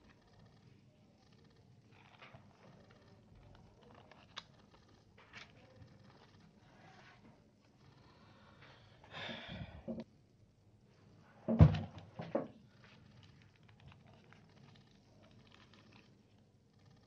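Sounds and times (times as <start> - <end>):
paper rustling: 2.0 - 7.2.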